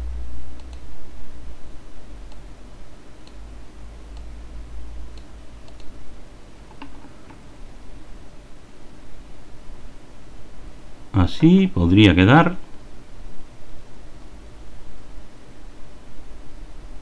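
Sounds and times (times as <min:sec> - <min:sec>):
steady low rumble: 0:00.0 - 0:06.6
computer mouse clicking: 0:00.6 - 0:00.9, 0:05.1 - 0:06.0, 0:06.7 - 0:07.4.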